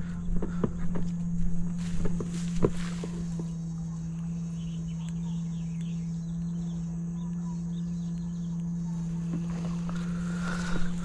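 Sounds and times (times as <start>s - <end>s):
steady low hum: 0.0s - 11.0s
faint high chirps: 3.0s - 11.0s.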